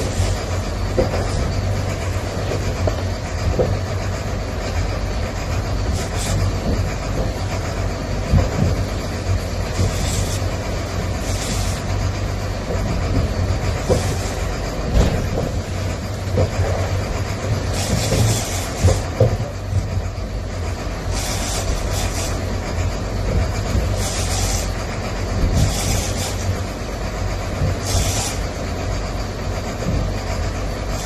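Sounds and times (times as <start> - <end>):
knocks and rattles: 0.0 - 20.9, 21.8 - 31.0
boat engine running: 0.0 - 31.0.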